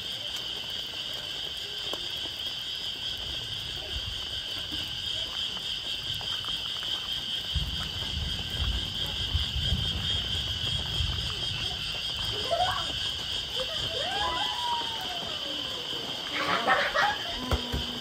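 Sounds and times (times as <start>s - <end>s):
insects chorus: 0.0s - 18.0s
rooster crowing: 13.9s - 18.0s.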